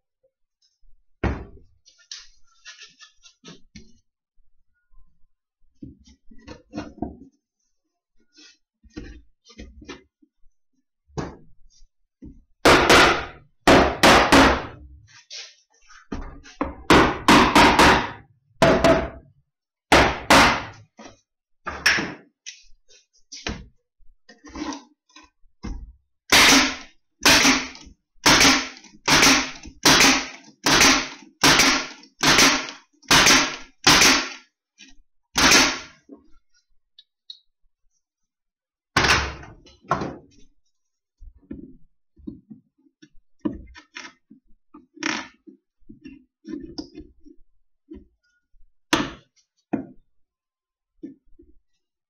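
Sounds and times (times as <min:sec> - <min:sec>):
nail gun firing into wood: 0:19.9 - 0:20.8, 0:26.3 - 0:34.4, 0:35.4 - 0:36.0.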